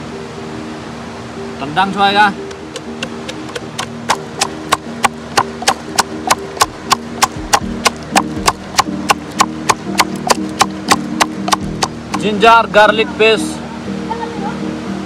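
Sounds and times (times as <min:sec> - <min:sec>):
wooden stick pounding in steel tumbler: 0:03.0 - 0:12.3.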